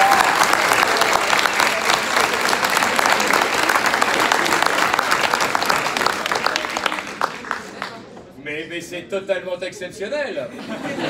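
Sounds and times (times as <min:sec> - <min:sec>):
audience applause: 0:00.0 - 0:08.1.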